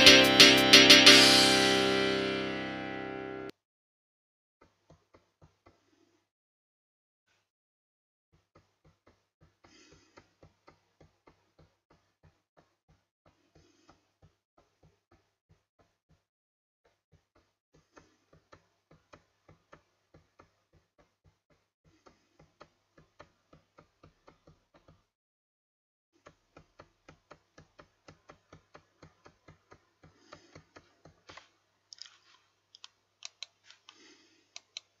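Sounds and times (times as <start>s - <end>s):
regular clicking: 26.2s - 35.0s.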